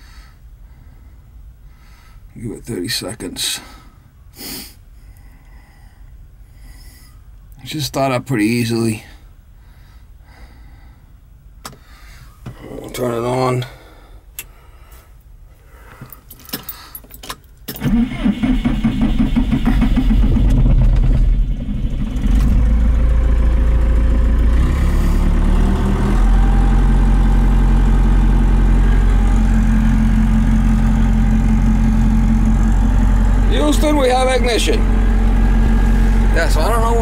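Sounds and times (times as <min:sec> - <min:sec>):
diesel engine cranking and idling: 0:16.0 - 0:37.0.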